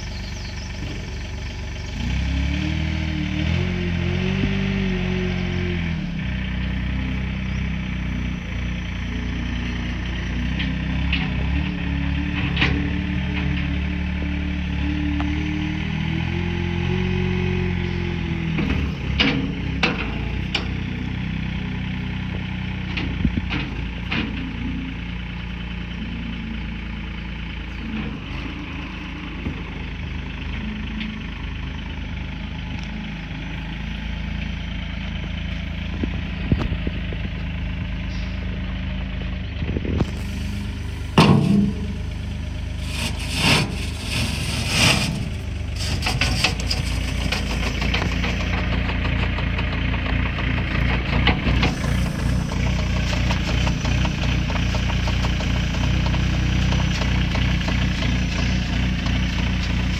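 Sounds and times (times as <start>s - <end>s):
diesel engine idling: 0.0s - 59.9s
sharp clicks and knocks: 45.8s - 57.8s.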